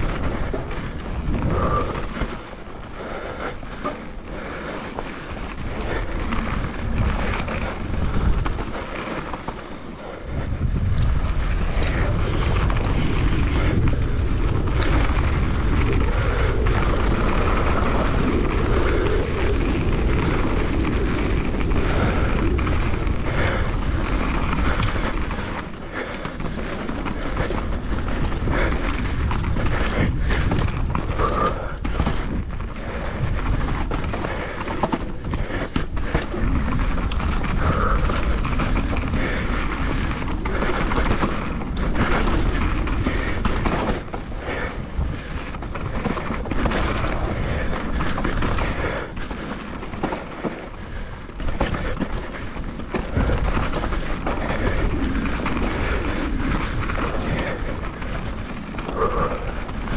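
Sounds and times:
bicycle tyre noise: 0:00.0 - 0:59.9
bike rattling over bumps: 0:00.0 - 0:59.9
wind rumbling on microphone: 0:00.0 - 0:59.9.

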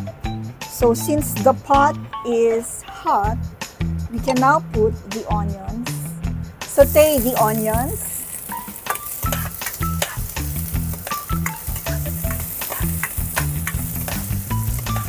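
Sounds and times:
onions sizzling in oil: 0:06.7 - 0:15.0.

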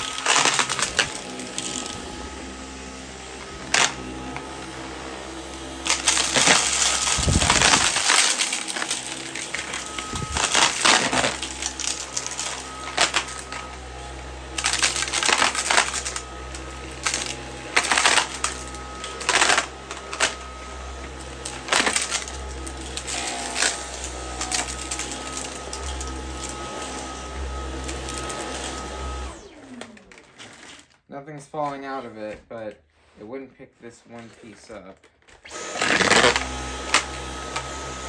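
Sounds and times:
vacuum motor winding down: 0:00.0 - 0:30.4, 0:35.4 - 0:38.0
vacuum cleaner running: 0:00.0 - 0:30.7, 0:35.4 - 0:38.0
debris rattling in vacuum: 0:00.0 - 0:30.9, 0:35.5 - 0:38.0.

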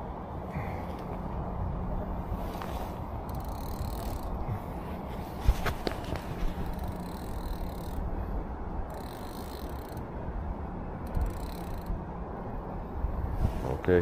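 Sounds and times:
low steady rumble: 0:00.0 - 0:14.0
fishing reel clicking: 0:03.2 - 0:04.4, 0:06.6 - 0:08.1, 0:08.9 - 0:10.1, 0:11.0 - 0:12.0.

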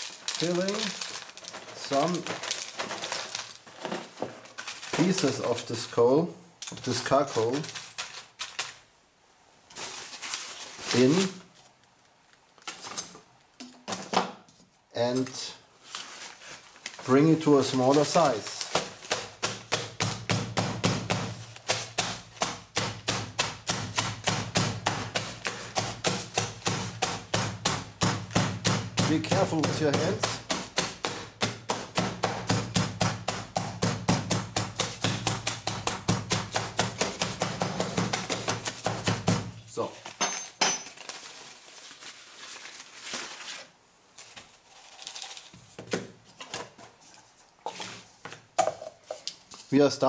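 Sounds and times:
hammer crushing charcoal: 0:00.0 - 0:05.6, 0:17.5 - 0:41.0.

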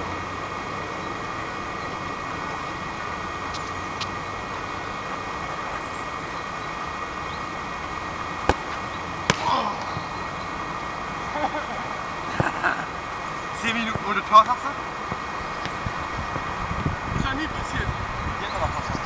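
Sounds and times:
steady background hum: 0:00.0 - 0:19.0
ball rebounding off goalkeeper: 0:08.4 - 0:10.3, 0:15.1 - 0:16.6.

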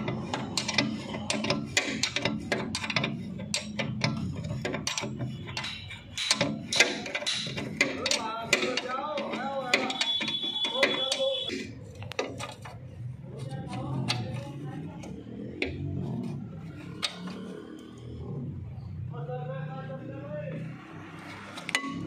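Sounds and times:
spanner clicking on a bolt: 0:00.0 - 0:12.8, 0:13.7 - 0:15.8, 0:16.6 - 0:17.5.

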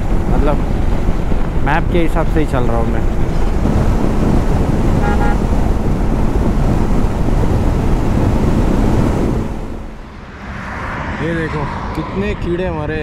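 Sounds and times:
wind rumble on microphone: 0:00.0 - 0:13.0
vehicle horn toot: 0:05.0 - 0:05.4.

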